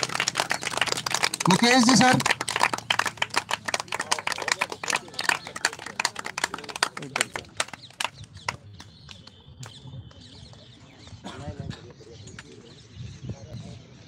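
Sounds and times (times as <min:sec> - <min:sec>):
group of people clapping: 0:00.0 - 0:10.8.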